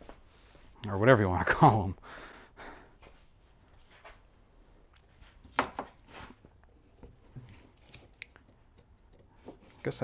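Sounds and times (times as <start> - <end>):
gloved hands handling parts: 5.3 - 10.0.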